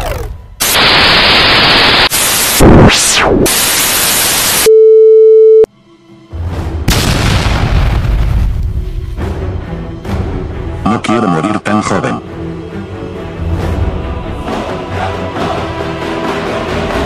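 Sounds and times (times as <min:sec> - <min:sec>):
static-like hiss: 0:00.6 - 0:04.7
steady beep: 0:04.6 - 0:05.7
low rumbling music: 0:05.7 - 0:17.0.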